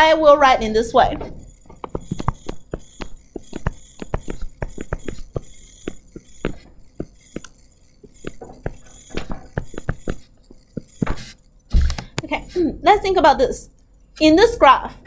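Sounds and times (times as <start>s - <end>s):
stylus tapping on touchscreen: 1.7s - 12.3s.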